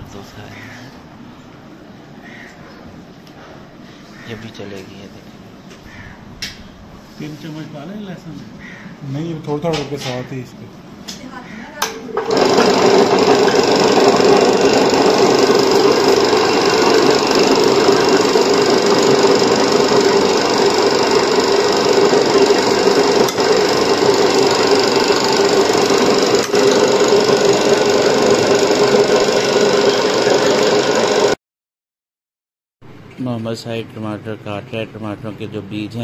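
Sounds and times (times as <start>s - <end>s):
electric meat mincer humming: 12.2s - 31.4s.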